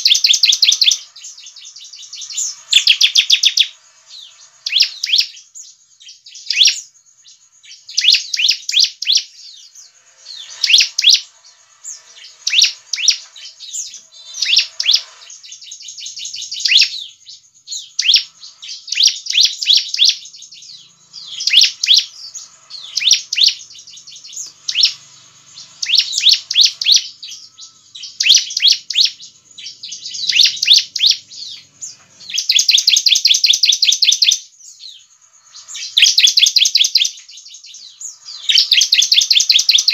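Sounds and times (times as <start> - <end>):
bird singing sharp chirps: 0.0 - 39.9.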